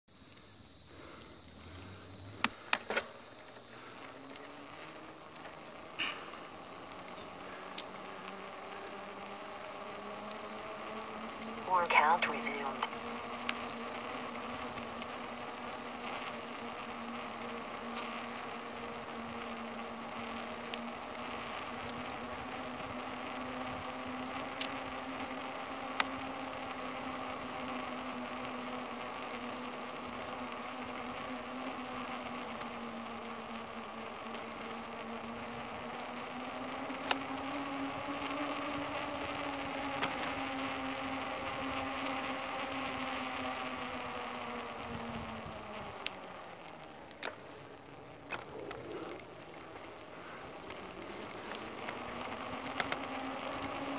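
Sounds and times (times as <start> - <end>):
bicycle wheels whirring: 0.1 - 53.9
sharp clicks: 37.0 - 37.3.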